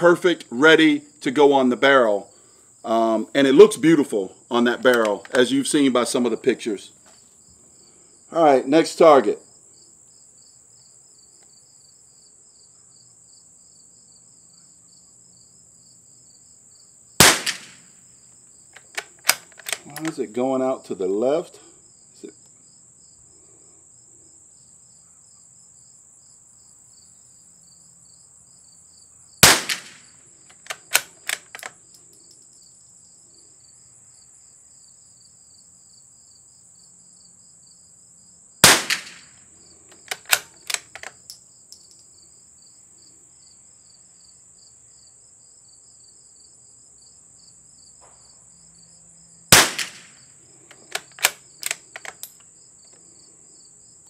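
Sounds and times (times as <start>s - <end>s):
crickets trilling: 0.0s - 54.0s
rifle bolt metallic clicks: 4.8s - 5.5s, 17.2s - 17.8s, 18.8s - 20.2s, 29.4s - 32.4s, 38.6s - 39.3s, 39.9s - 42.0s, 49.6s - 50.1s, 50.7s - 52.5s
rifle shots: 17.2s - 17.9s, 29.4s - 30.0s, 38.6s - 39.3s, 49.5s - 50.2s.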